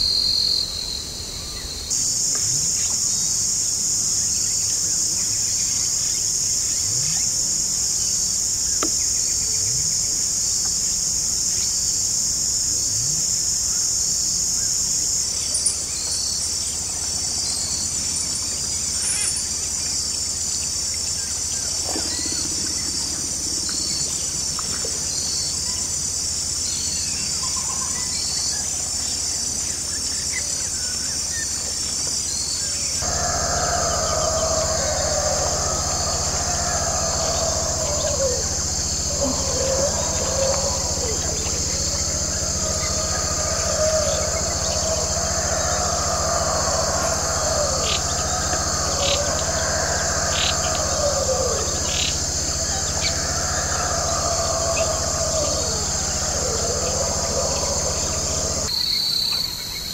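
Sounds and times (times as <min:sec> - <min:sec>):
pulsing insect chorus: 0:00.0 - 0:59.9
insects shrilling: 0:13.8 - 0:28.8, 0:33.0 - 0:59.9
faint bird calls: 0:21.4 - 0:26.0, 0:33.0 - 0:59.9.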